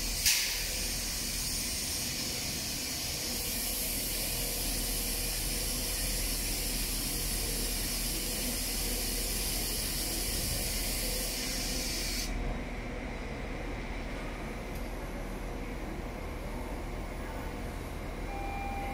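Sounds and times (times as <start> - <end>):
diesel locomotive approaching: 0.0 - 18.9.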